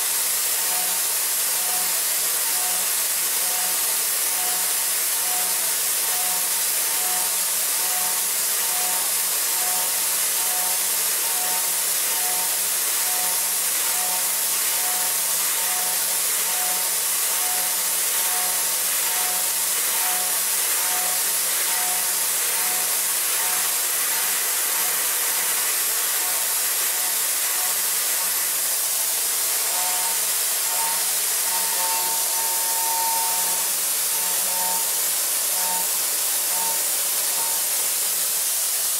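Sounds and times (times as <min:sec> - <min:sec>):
metal cutting hiss: 0:17.4 - 0:38.9.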